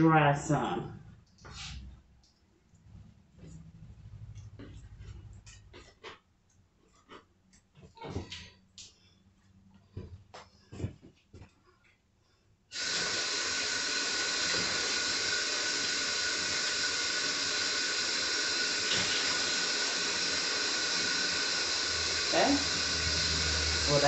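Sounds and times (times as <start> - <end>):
faucet water running into sink: 12.8 - 24.0.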